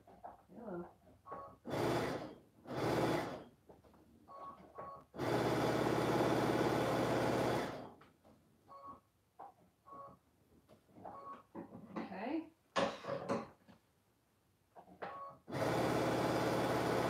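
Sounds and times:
electric sewing machine stitching: 0:01.6 - 0:03.5, 0:05.1 - 0:08.0, 0:15.5 - 0:17.0.

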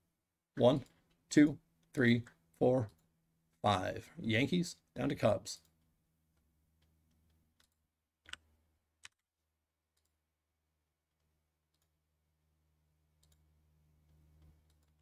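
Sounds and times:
computer mouse clicks: 0:06.8 - 0:09.2, 0:13.2 - 0:13.5, 0:14.1 - 0:15.0.

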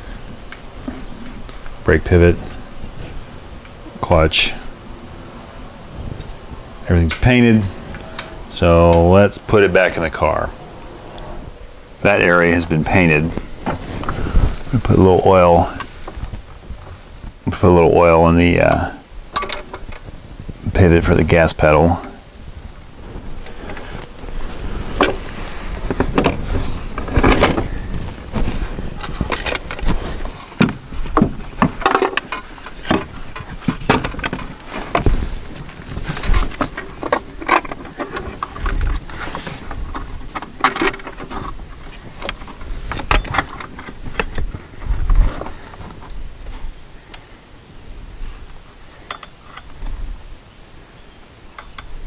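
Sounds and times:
metal clinks and knocks: 0:29.0 - 0:35.0, 0:43.0 - 0:44.0, 0:49.1 - 0:49.8.

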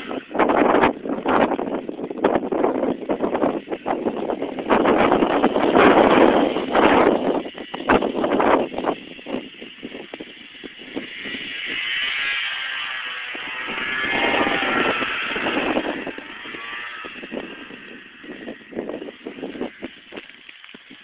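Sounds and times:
snowmobile engine revving: 0:00.0 - 0:20.8
wind buffeting the microphone: 0:00.0 - 0:21.0.

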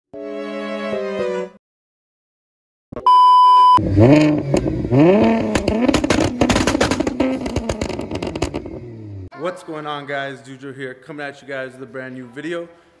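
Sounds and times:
loud steady beep: 0:03.0 - 0:03.8
car engine revving: 0:03.8 - 0:09.3
exhaust popping and crackling: 0:04.0 - 0:09.0.

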